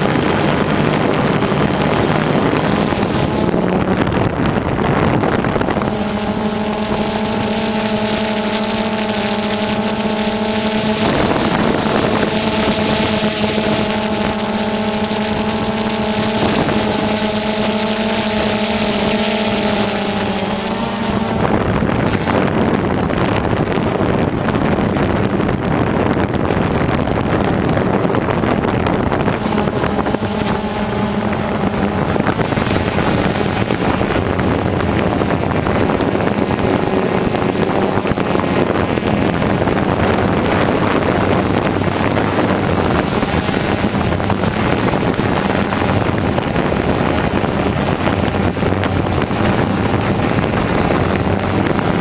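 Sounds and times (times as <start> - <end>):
drone propellers buzzing: 0.0 - 52.0
wind on microphone: 0.0 - 52.0.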